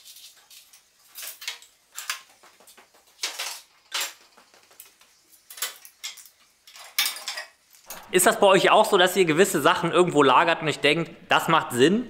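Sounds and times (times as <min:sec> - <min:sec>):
metal tools clinking and clattering: 0:05.5 - 0:08.1.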